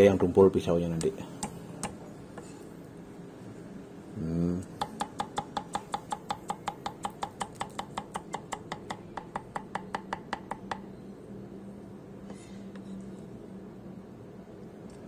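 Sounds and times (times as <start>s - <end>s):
knife chopping on wooden board: 4.8s - 10.8s.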